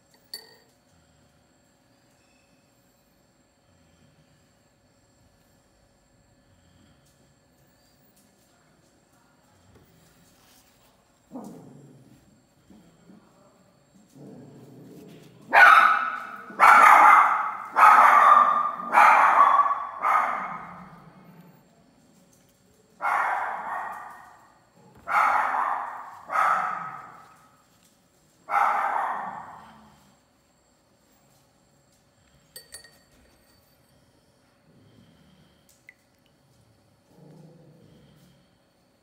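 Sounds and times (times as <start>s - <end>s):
dog barking: 15.5s - 21.0s, 23.0s - 27.4s, 28.5s - 29.8s.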